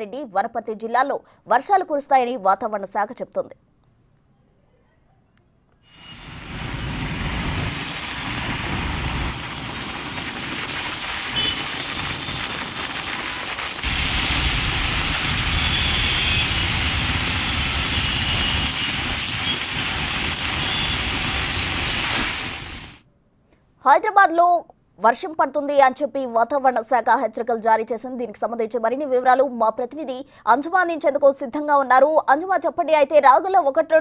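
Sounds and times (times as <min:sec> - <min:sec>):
heavy rain pouring: 0:05.9 - 0:23.0
cars driving through water: 0:06.0 - 0:23.0.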